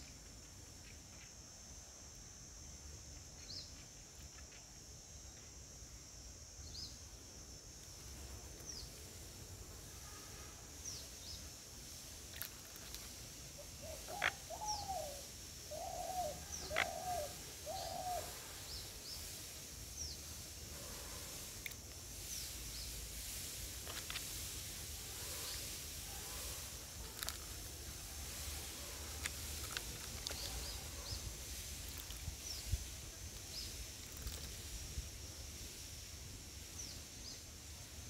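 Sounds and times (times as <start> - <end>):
lower bird calls: 13.6 - 19.3.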